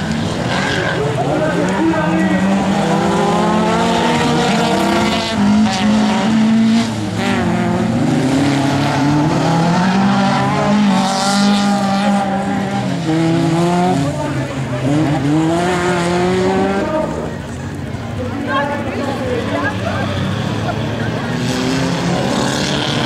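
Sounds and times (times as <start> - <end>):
race car engines revving: 0.0 - 23.0.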